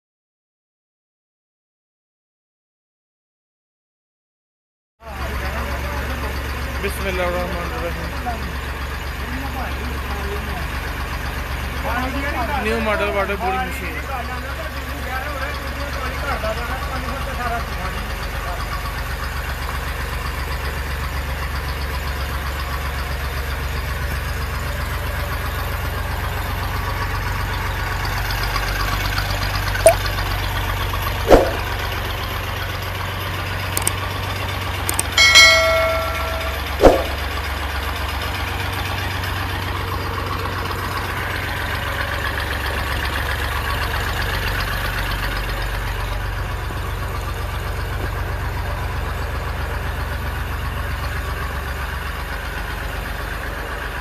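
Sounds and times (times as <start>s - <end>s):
sharp knocks: 31.3s - 31.7s, 34.9s - 37.3s
clicks: 33.8s - 34.0s, 34.9s - 37.2s
short bell chime: 34.9s - 37.3s.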